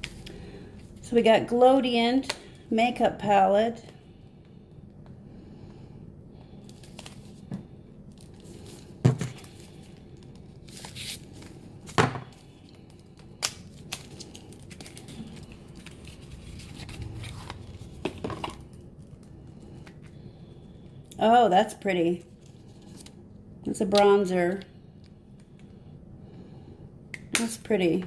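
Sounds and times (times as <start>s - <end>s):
cardboard packaging tearing and crinkling: 10.6s - 11.4s.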